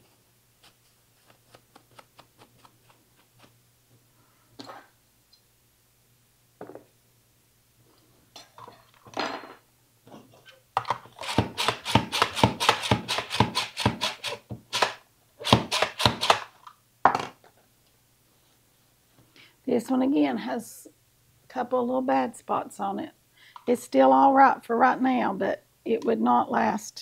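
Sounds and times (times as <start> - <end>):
slicer chopping strokes: 11.2 - 16.5.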